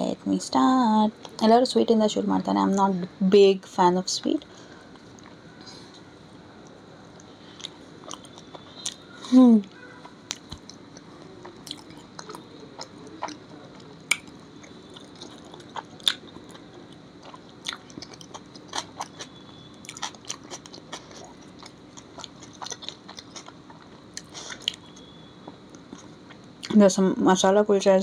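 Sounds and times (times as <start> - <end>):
person chewing food: 7.2 - 9.2, 10.0 - 26.7.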